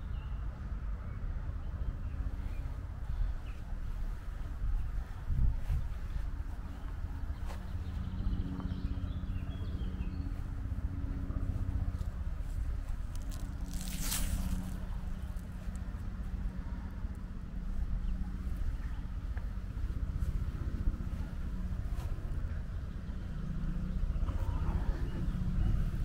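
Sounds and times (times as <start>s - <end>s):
steady low hum: 0.0s - 26.0s
wind rumbling on microphone: 2.0s - 26.0s.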